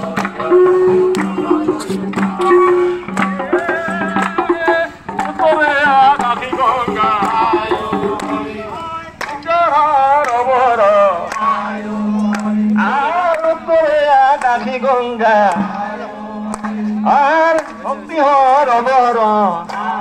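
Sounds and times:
pitched hand-drum strokes: 0:00.0 - 0:09.4, 0:14.2 - 0:18.1
person singing: 0:00.0 - 0:20.0.

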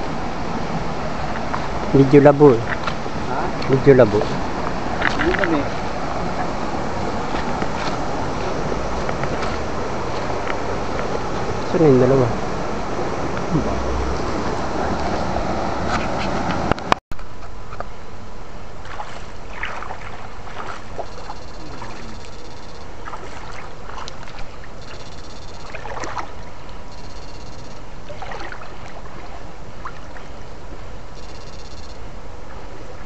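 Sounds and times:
water sloshing in a stream: 0:00.0 - 0:16.8, 0:18.6 - 0:33.0
short high-pitched buzzes: 0:21.0 - 0:23.9, 0:24.7 - 0:28.0, 0:31.1 - 0:32.4.

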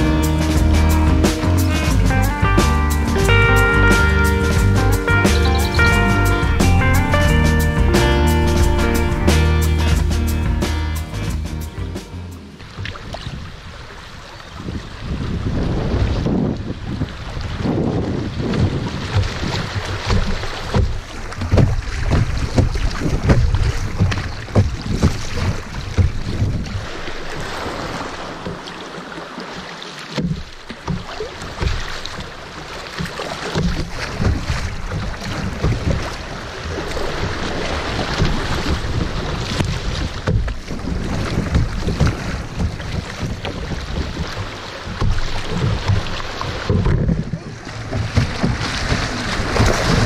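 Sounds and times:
river rushing and splashing: 0:00.0 - 0:50.0
wind buffeting microphone: 0:12.6 - 0:28.1, 0:33.7 - 0:50.0.

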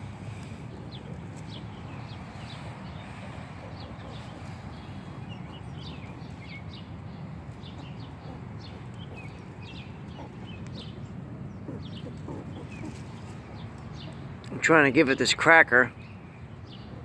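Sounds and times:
baby squirrel squeaking: 0:07.6 - 0:14.2.

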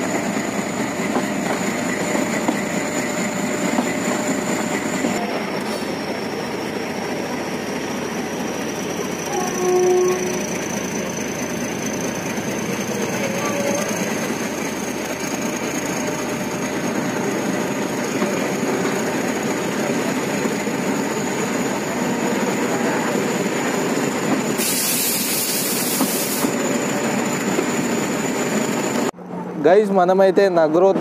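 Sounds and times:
train wheels on rails: 0:00.0 - 0:29.2
hiss: 0:24.5 - 0:26.6.

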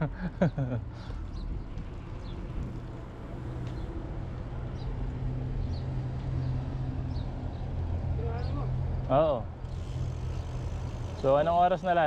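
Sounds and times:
bicycle rolling noise: 0:00.9 - 0:06.1, 0:09.6 - 0:12.0
wind rumble: 0:01.2 - 0:06.9.

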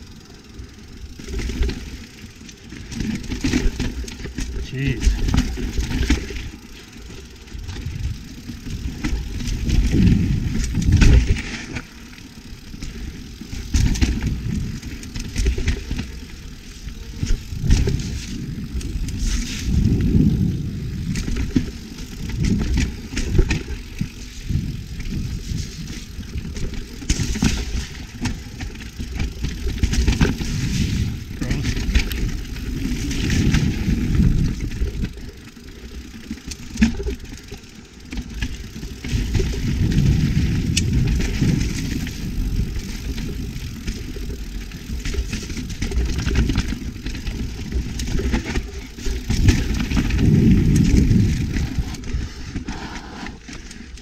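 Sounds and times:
bike rattling and knocking: 0:00.0 - 0:54.0
bike tyres rolling over dirt: 0:00.0 - 0:54.0
wind buffeting microphone: 0:17.2 - 0:23.6, 0:39.0 - 0:43.8, 0:49.2 - 0:52.4.

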